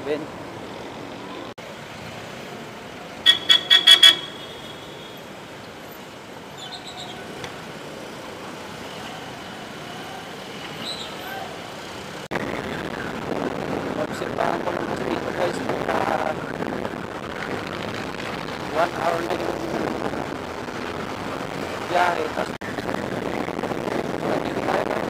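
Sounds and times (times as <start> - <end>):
traffic noise: 0.0 - 25.0
vehicle horn tooting: 3.2 - 5.4.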